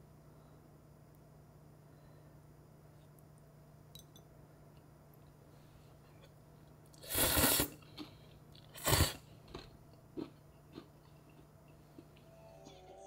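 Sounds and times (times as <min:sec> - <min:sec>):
loud mouth eating noises: 0:07.0 - 0:07.9.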